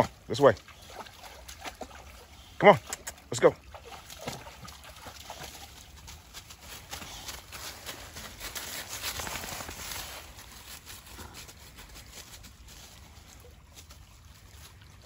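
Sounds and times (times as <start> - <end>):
footsteps crunching dry leaves: 5.3 - 15.0.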